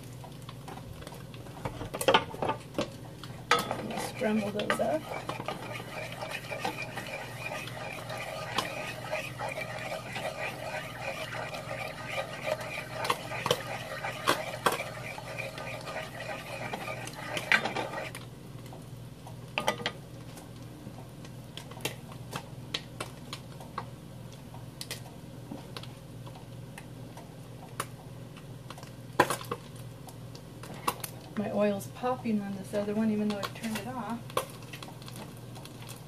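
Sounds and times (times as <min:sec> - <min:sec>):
steady low hum: 0:03.2 - 0:18.4
hot oil popping: 0:03.5 - 0:18.2
spatula scraping frying pan: 0:03.5 - 0:18.2.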